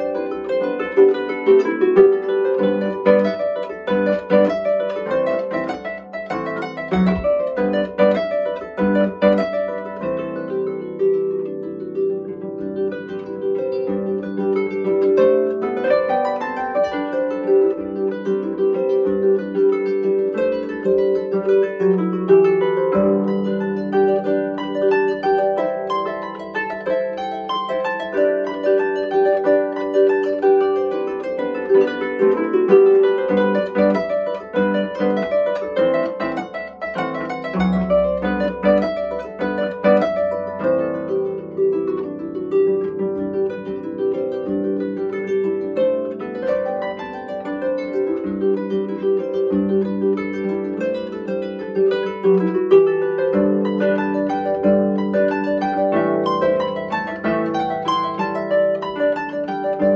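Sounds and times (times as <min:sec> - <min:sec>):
harp playing: 0:00.0 - 0:59.9.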